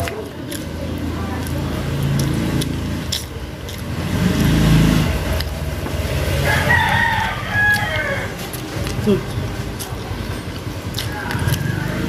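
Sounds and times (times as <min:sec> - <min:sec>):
vehicle passing by: 0:00.0 - 0:12.0
rooster crowing: 0:06.3 - 0:08.4.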